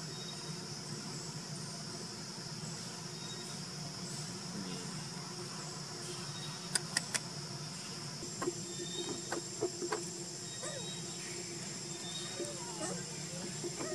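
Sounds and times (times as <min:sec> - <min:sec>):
insects chorus: 0:00.0 - 0:13.9
sharp clicks: 0:06.7 - 0:07.3.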